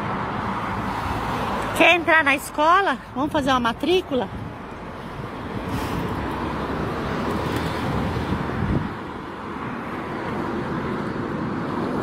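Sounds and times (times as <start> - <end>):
road traffic noise: 0.0 - 12.0
wind rumbling on microphone: 3.2 - 12.0.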